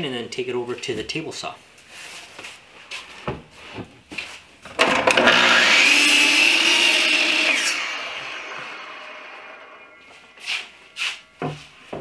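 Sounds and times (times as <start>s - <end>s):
saw blade winding down whine: 4.8s - 10.8s
miter saw cutting wood: 4.8s - 11.2s.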